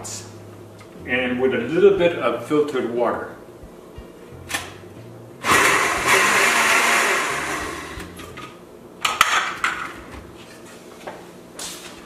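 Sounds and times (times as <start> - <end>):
blender running: 5.4 - 8.2.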